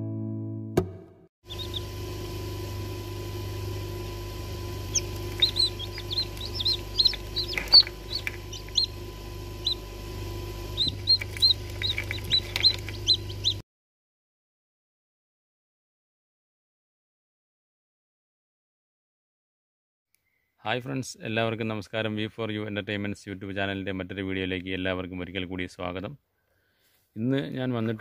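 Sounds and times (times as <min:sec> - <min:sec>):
chicks peeping: 0:01.5 - 0:02.4, 0:04.4 - 0:13.6
steady low hum: 0:01.5 - 0:13.6.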